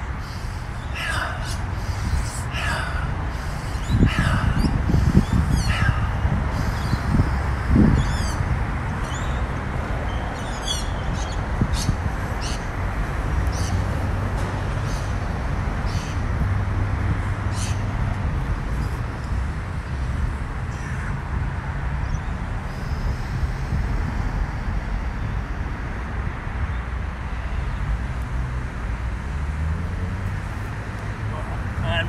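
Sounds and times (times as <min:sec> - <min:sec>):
birds chirping: 0:00.0 - 0:12.8.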